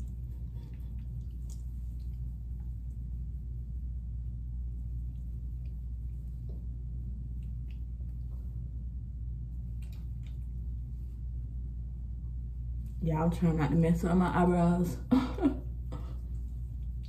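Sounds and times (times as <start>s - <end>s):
wet squishing of cleanser: 0.0s - 3.2s
steady low hum: 0.0s - 17.0s.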